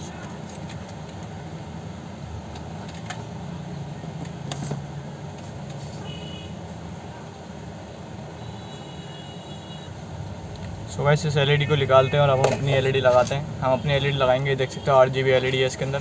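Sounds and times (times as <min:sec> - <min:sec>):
low background rumble: 0:09.9 - 0:14.6.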